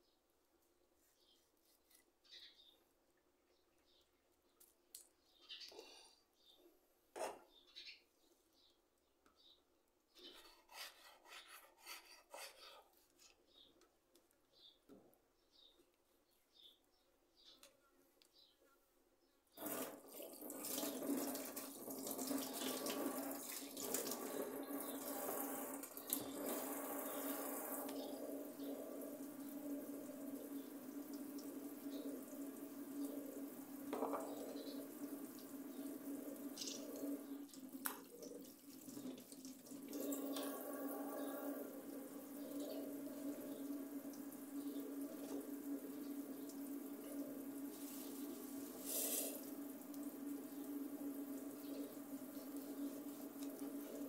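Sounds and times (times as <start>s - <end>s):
tap water running into sink: 19.6s - 41.1s, 41.7s - 54.0s.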